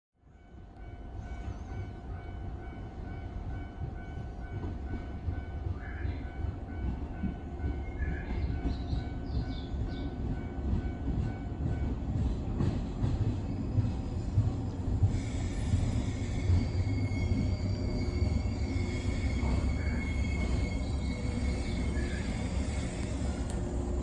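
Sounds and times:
electric train rumbling: 0.2s - 24.0s.

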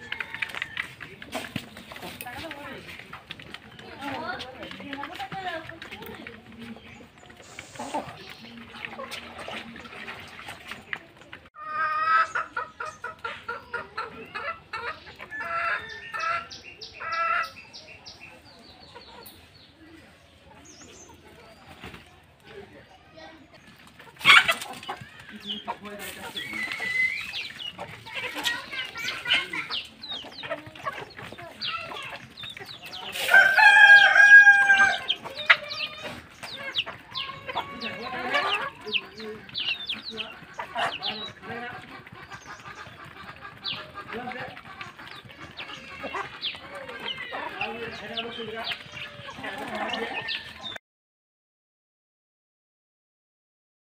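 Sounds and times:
chickens clucking and calling: 0.0s - 50.8s
rooster crowing: 33.2s - 35.1s.

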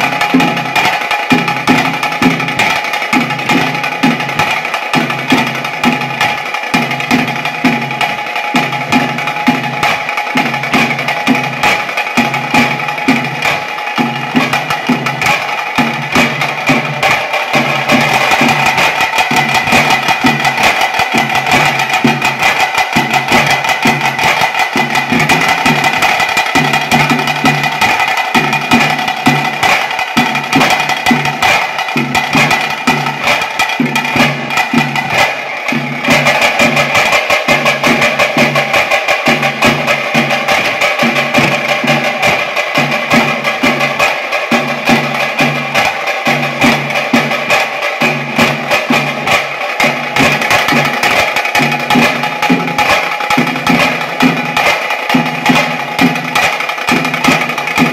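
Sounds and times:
deep drum beats: 0.0s - 57.9s
rapid drum stick strikes: 0.0s - 57.9s.

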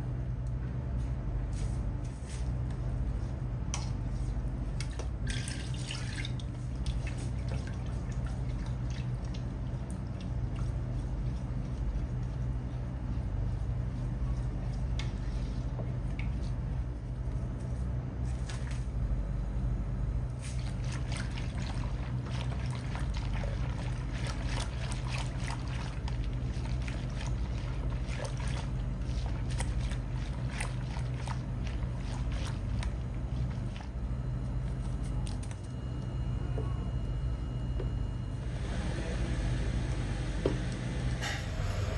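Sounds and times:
low hum: 0.0s - 41.9s
whisk stirring yogurt: 5.5s - 16.7s, 20.4s - 34.0s.

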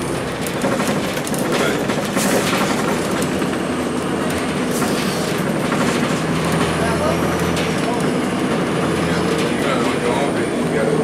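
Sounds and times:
bus diesel engine droning: 0.0s - 11.0s
road noise: 0.0s - 11.0s
body and fittings rattling: 0.4s - 10.0s.

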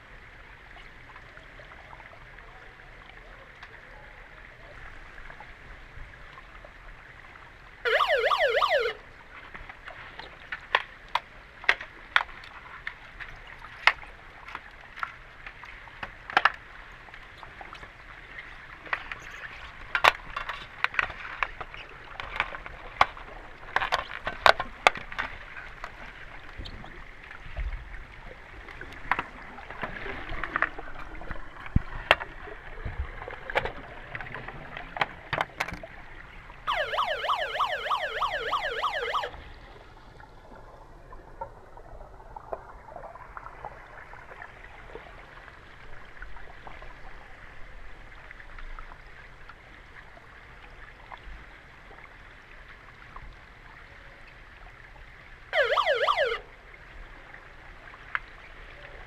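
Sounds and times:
warbling underwater buzzer: 7.9s - 9.0s, 36.7s - 39.3s, 55.6s - 56.4s.

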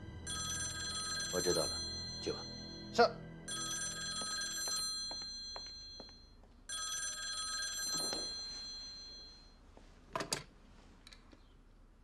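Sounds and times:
telephone bell ringing: 0.2s - 2.9s, 3.5s - 9.6s.

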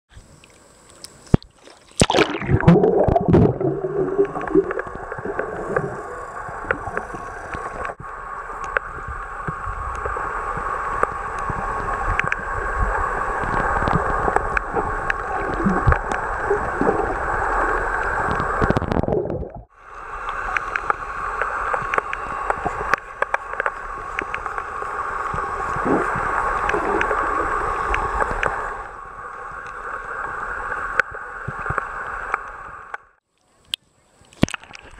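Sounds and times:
scattered underwater clicks: 0.2s - 19.6s, 20.2s - 34.9s
splash and gurgle: 1.3s - 8.0s, 10.0s - 19.7s, 20.3s - 28.8s
muffled underwater rush: 1.5s - 33.2s.

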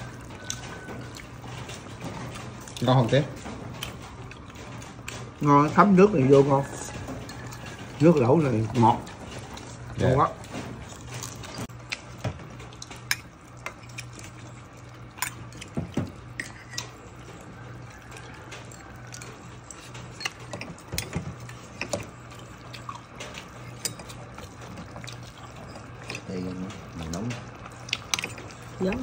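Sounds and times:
ladle clinking on pot and bowl: 15.2s - 17.0s.

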